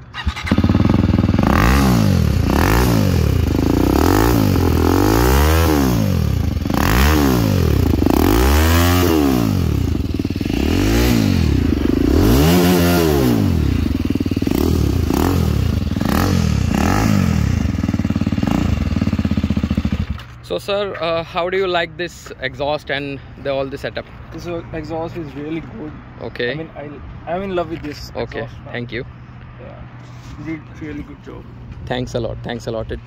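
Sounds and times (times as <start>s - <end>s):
motorcycle engine revving: 0.0s - 20.3s.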